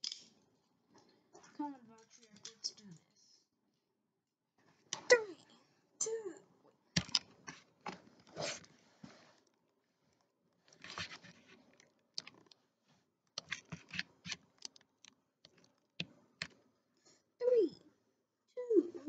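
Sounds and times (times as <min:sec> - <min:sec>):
toys rustling: 0:10.6 - 0:12.6.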